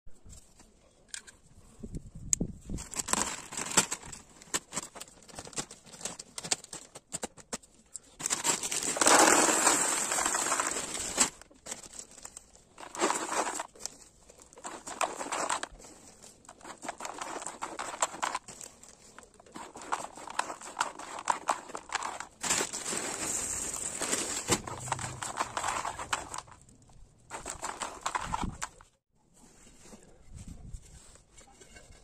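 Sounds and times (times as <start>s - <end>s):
plastic bags crinkling: 2.8s - 28.9s
gravel pouring into plastic pot: 8.2s - 28.6s.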